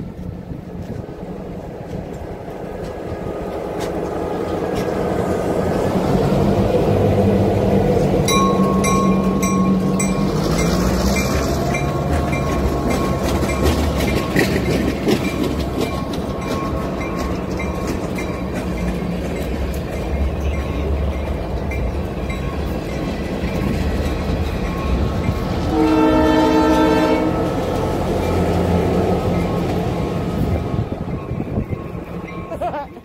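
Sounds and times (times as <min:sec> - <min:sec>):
freight train rumbling past: 0:00.0 - 0:33.0
wheels clicking over rail joints: 0:00.0 - 0:33.0
locomotive horn: 0:25.6 - 0:27.8.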